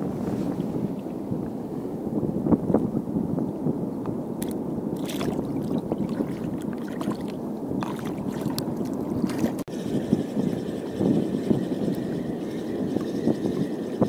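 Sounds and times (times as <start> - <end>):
seawater washing against rocks: 4.4 - 9.7.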